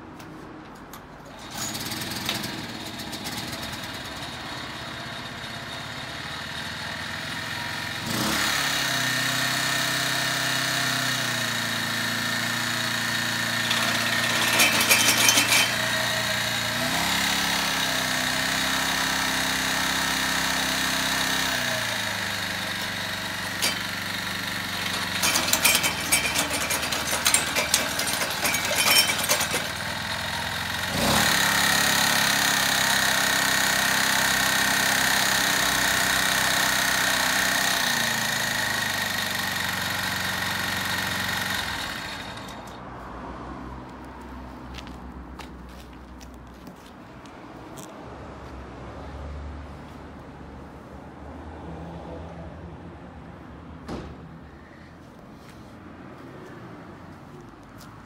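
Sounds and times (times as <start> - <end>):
steel tines clattering on asphalt: 0.7 - 4.8, 9.3 - 42.8, 43.8 - 48.0
tiller engine running: 1.2 - 42.8.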